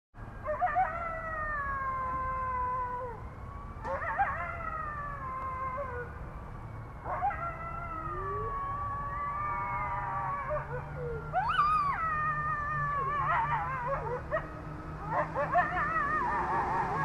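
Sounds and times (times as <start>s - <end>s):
wolves howling in chorus: 0.4s - 6.2s, 7.0s - 17.0s.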